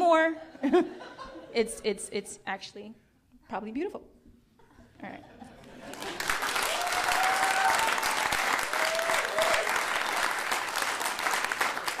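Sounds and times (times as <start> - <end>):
audience applauding: 5.8 - 12.0
long whoops: 6.6 - 9.8.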